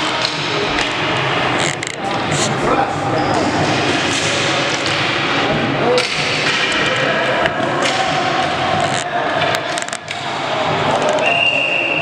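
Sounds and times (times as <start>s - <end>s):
hockey sticks hitting ball: 0.0s - 1.2s, 3.6s - 11.3s.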